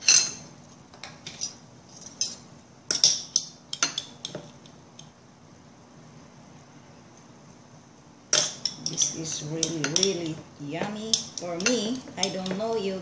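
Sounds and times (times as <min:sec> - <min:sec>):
metal fork clinking against glass jar: 0:08.4 - 0:10.4, 0:11.0 - 0:12.6.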